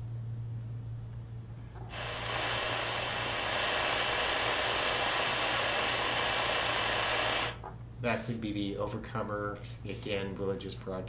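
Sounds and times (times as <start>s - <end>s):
low hum: 0.0s - 8.0s
shortwave radio static hiss: 1.8s - 8.4s.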